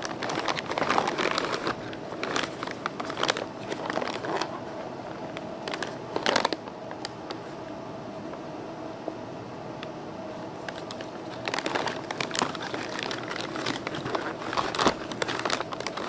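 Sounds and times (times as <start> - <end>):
cardboard and packing rustling: 0.0 - 4.8, 5.6 - 6.6, 10.6 - 16.0.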